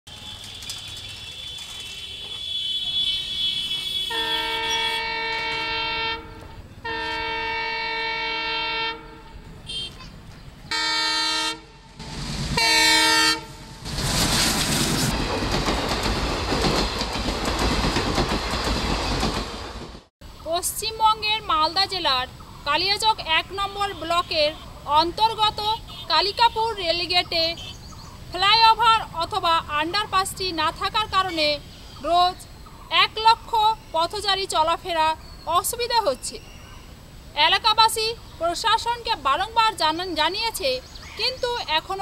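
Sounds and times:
train horn blasts: 1.9 - 10.0, 10.7 - 12.0, 12.6 - 13.8
train wheels clattering on rails: 13.9 - 20.1.

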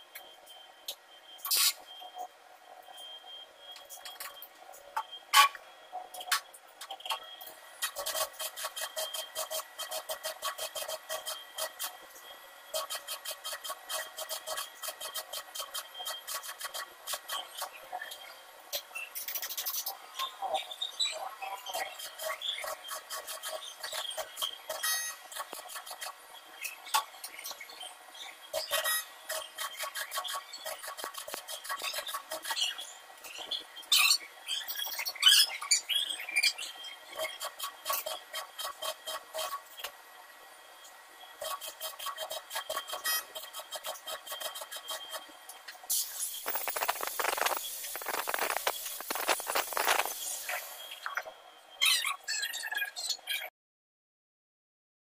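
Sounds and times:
welding arc crackling: 45.9 - 51.1
metal scraping and clinking: 46.1 - 50.6.

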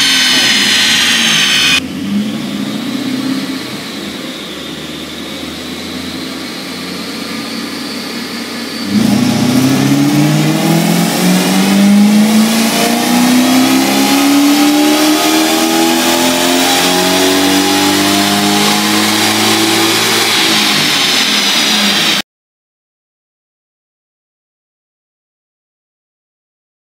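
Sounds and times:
thin whine: 0.0 - 13.9
car engine revving: 0.0 - 22.2.

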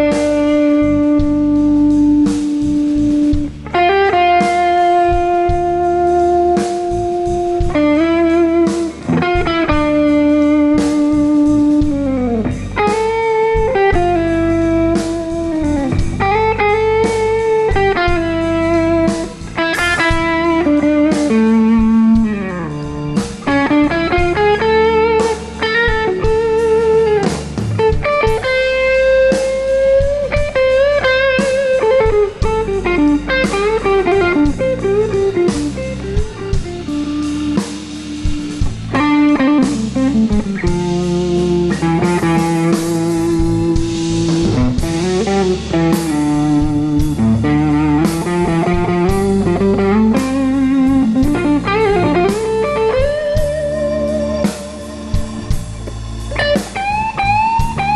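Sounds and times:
blues band playing: 0.0 - 57.9
lead guitar bent notes: 0.0 - 57.9
steady drum hits: 2.5 - 6.0, 14.9 - 53.9.

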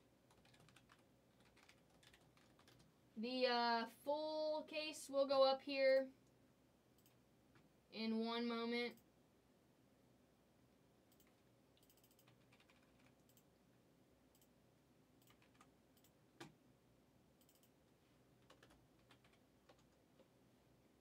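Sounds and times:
computer keyboard taps and clicks: 0.3 - 2.9, 11.1 - 13.5, 15.2 - 16.6, 17.4 - 17.8, 18.4 - 20.3.

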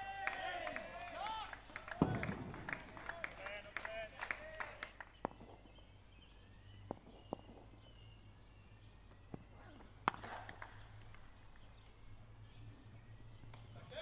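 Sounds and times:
open-ground ambience: 0.0 - 14.0
cricket bat striking ball: 9.3 - 10.8.

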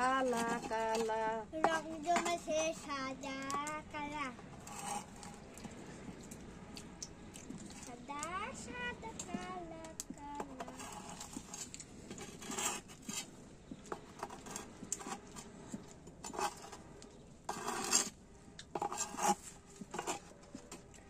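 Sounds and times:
utensils scraping and clinking dishes: 4.5 - 5.7.

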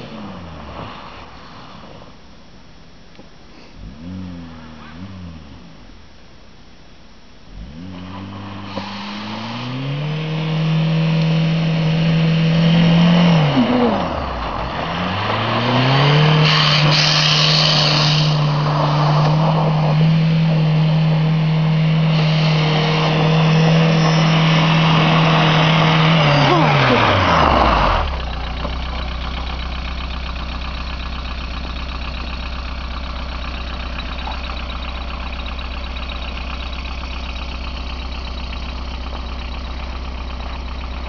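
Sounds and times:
diesel car engine revving: 0.0 - 2.2, 3.6 - 6.1, 7.4 - 41.0
rushing hiss: 8.6 - 9.8, 16.3 - 18.6, 22.0 - 25.7.

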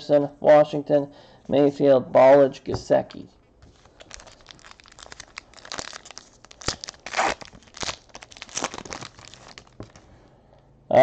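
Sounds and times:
wrapper tearing and crinkling: 3.6 - 10.0.

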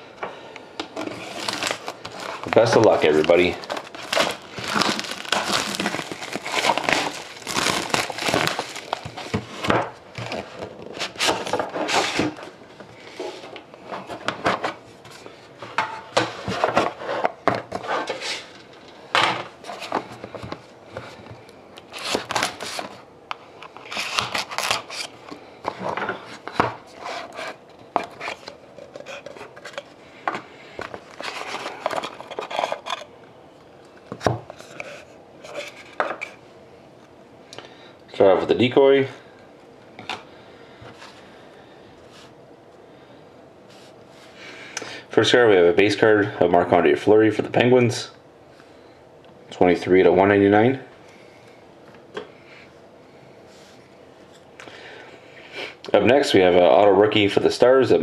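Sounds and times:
plastic shrink wrap crinkling: 1.0 - 12.2, 21.9 - 23.0.

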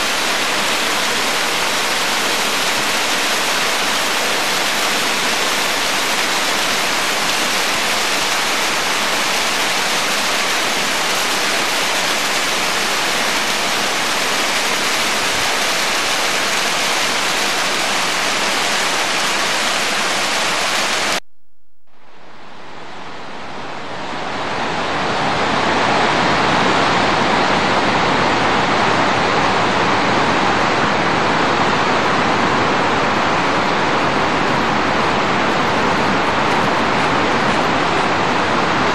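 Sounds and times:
stream and waterfall rushing over rocks: 0.0 - 21.2, 23.3 - 38.9.

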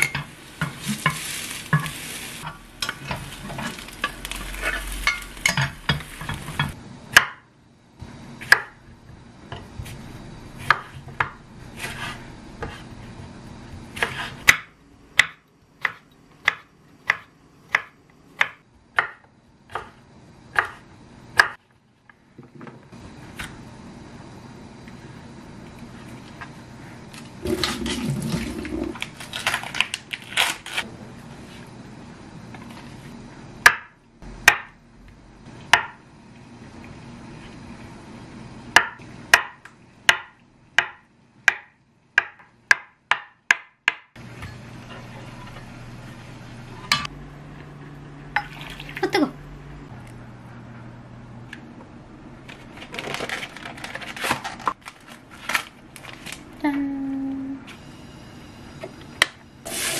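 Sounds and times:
knife chopping on wooden board: 14.0 - 20.0.

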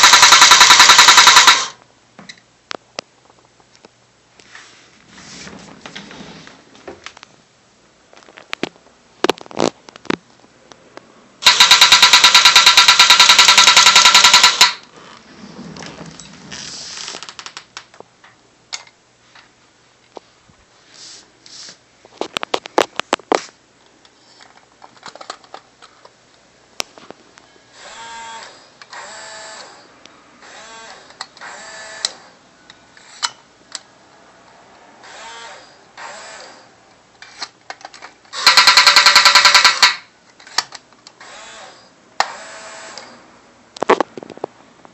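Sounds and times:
loud fast mechanical rattle: 0.0 - 1.8, 11.4 - 14.8, 38.3 - 40.0
toy mechanism clicks: 0.0 - 1.8, 11.4 - 14.8, 37.2 - 40.8.

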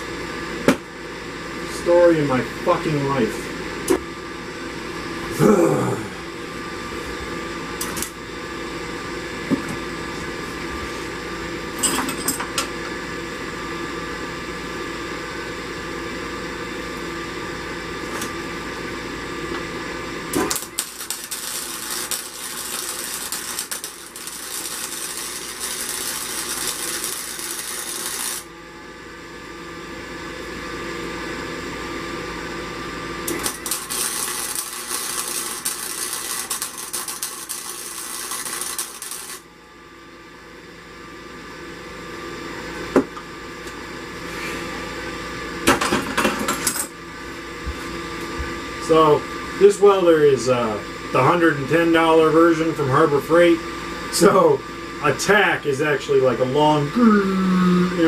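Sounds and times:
welder fan hum: 0.0 - 58.0
welding arc hissing and crackling: 20.3 - 28.5, 33.2 - 39.5.

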